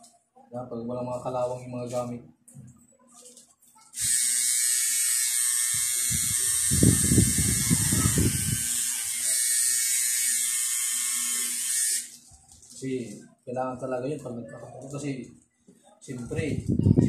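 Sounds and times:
tattoo machine buzzing: 4.0s - 12.2s.

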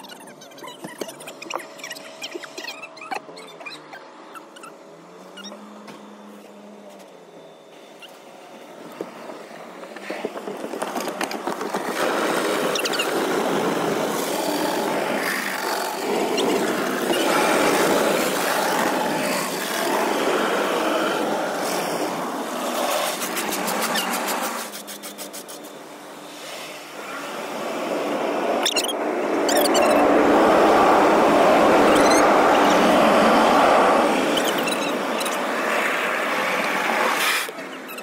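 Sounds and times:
cloth brushes scrubbing car: 21.2s - 25.8s.

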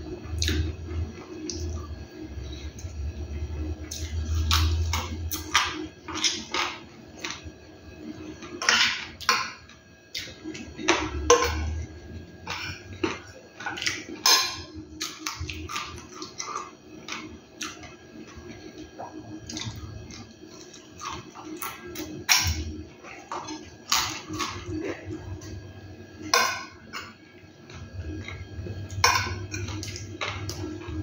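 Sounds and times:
chewing and smacking: 15.0s - 22.4s.

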